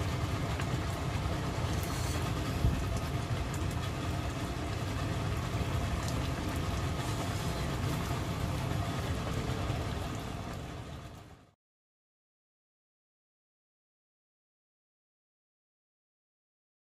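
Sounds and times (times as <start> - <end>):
steady low rumble: 0.0 - 11.6
stew bubbling and popping: 0.0 - 11.6.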